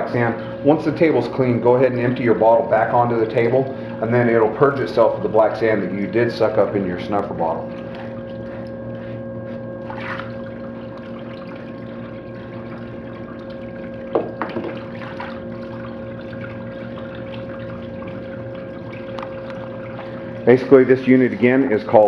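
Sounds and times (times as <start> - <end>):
pump humming: 0.0 - 22.0
water trickling over sluice: 9.8 - 22.0.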